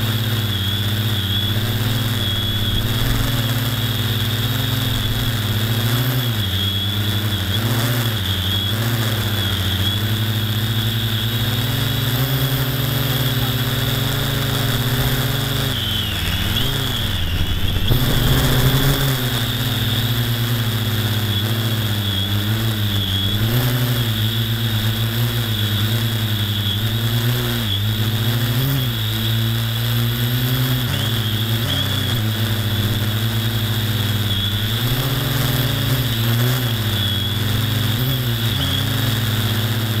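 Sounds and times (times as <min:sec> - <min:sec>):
rushing noise: 0:00.0 - 0:27.0
electric motor and propeller whine: 0:00.0 - 0:40.0.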